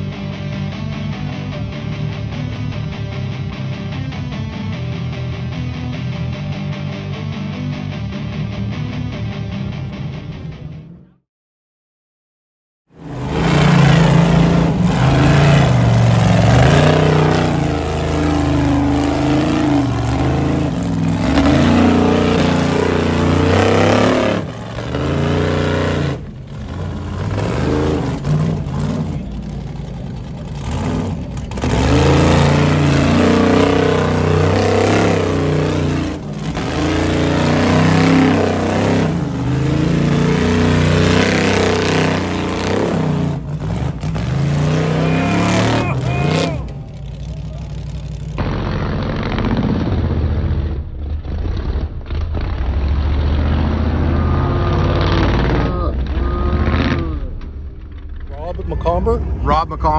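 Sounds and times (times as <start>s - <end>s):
car engine revving hard: 13.0s - 57.4s.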